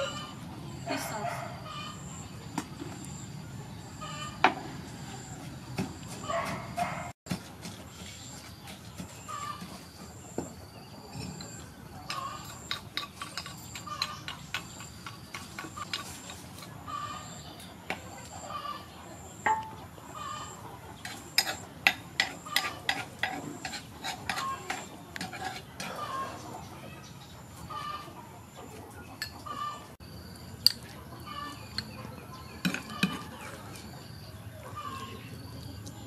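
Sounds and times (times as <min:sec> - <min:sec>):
metal spoon clinking: 0:12.1 - 0:15.0.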